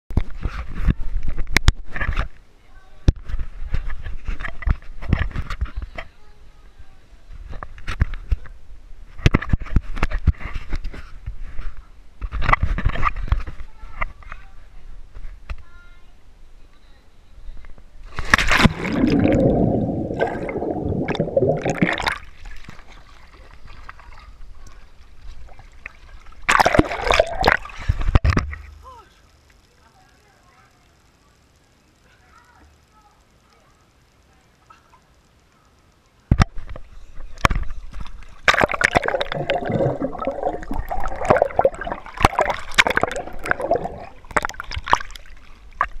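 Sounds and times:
muffled underwater rumble: 18.0s - 22.6s, 36.3s - 46.0s
pool water splashing: 18.1s - 28.0s, 37.8s - 46.0s
air bubbles clicking: 18.2s - 22.8s, 25.8s - 28.2s, 37.4s - 46.0s.

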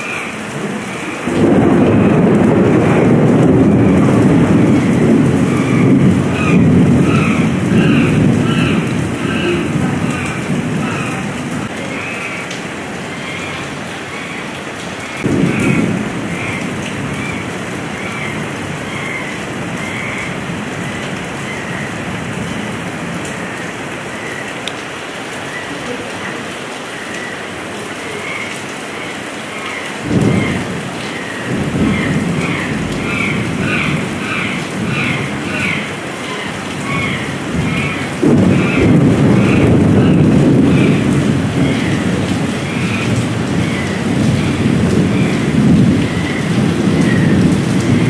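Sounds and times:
thunder rumbles: 0.0s - 23.9s, 30.0s - 48.0s
heavy rain falling: 0.0s - 48.0s.

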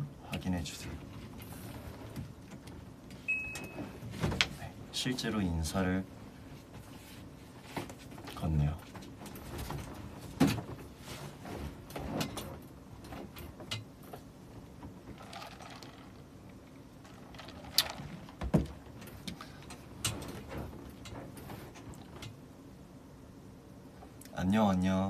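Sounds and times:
objects being handled: 6.6s - 22.3s.

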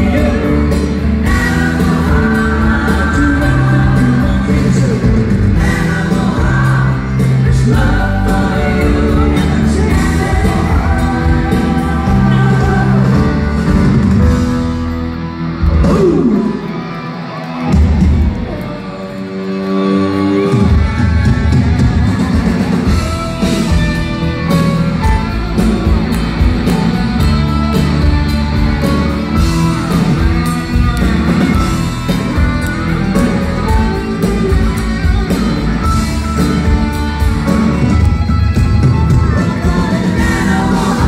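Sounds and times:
electric guitar: 0.0s - 41.0s
live rock band playing: 0.0s - 41.0s.

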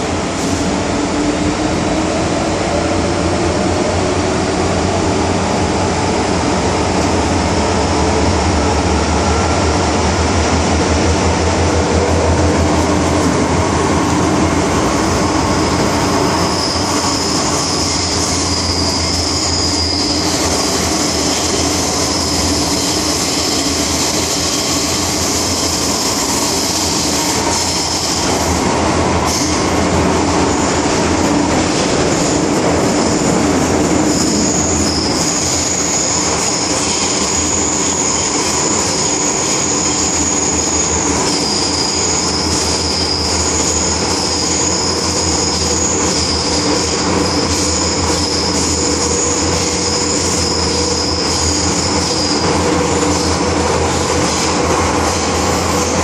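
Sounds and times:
train rumble and hum: 0.0s - 56.0s
high-pitched wheel squeal: 15.1s - 23.8s, 33.9s - 53.4s.

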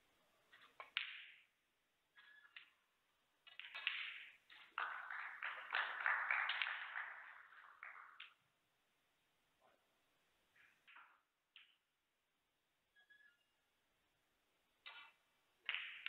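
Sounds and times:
snooker balls clicking together: 0.5s - 1.6s, 2.2s - 2.8s, 3.4s - 8.4s, 10.6s - 11.9s, 14.8s - 16.0s.

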